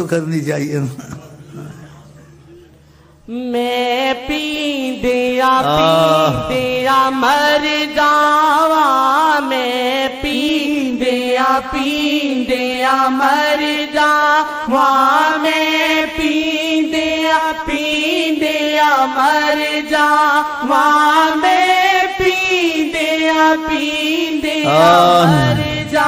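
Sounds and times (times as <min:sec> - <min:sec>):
person singing devotional melody: 0:03.3 - 0:26.0.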